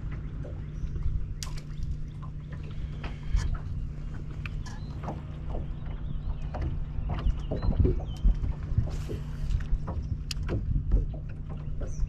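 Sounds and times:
steady low hum: 0.0 - 12.0
sharp clicks and knocks: 2.5 - 12.0.

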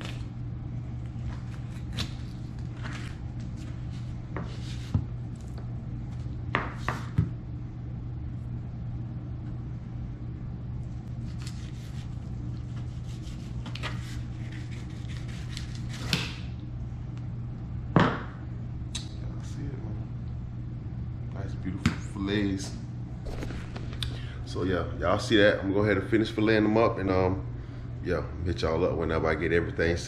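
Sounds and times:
steady low hum: 0.0 - 30.0
knife scraping fish: 11.2 - 16.3.

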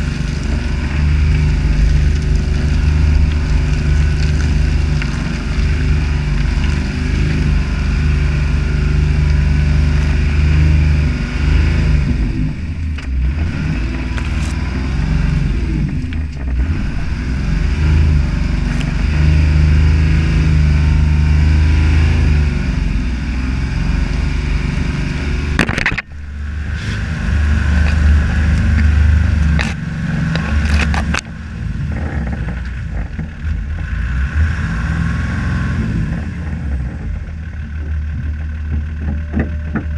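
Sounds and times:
diesel engine running under load: 0.0 - 39.9
tyres in mud: 0.0 - 39.9
plants brushing vehicle body: 26.0 - 31.2.

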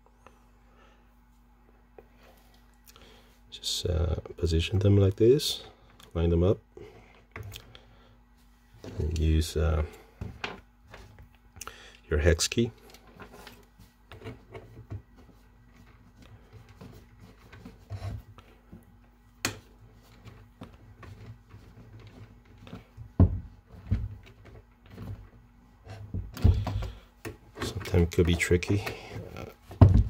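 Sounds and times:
handling knocks: 27.6 - 30.0.

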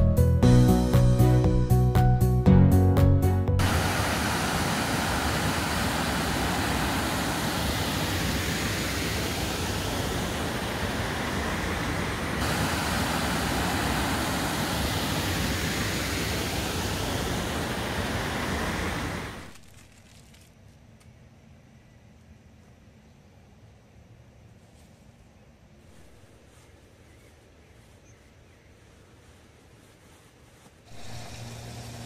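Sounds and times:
waterfall roaring: 3.6 - 19.5, 30.9 - 32.0.

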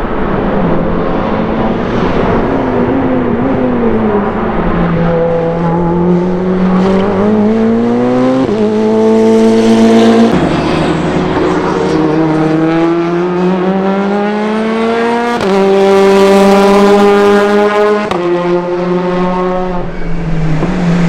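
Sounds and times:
race car engine: 0.0 - 21.0.

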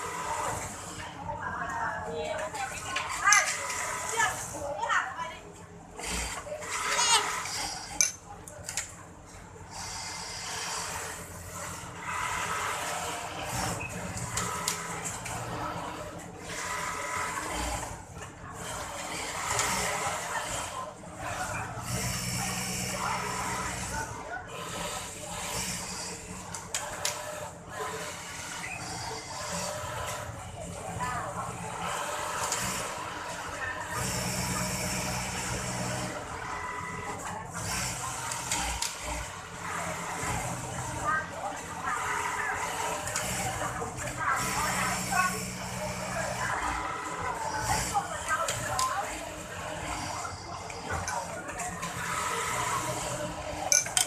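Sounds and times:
faint voices: 0.0 - 54.0
industrial sewing machines running: 0.0 - 54.0.

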